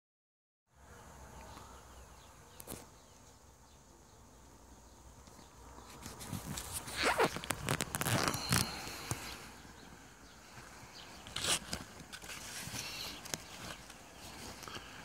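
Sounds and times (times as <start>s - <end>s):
faint outdoor background hiss: 0.7s - 15.0s
rustling and scuffing close by: 5.3s - 15.0s.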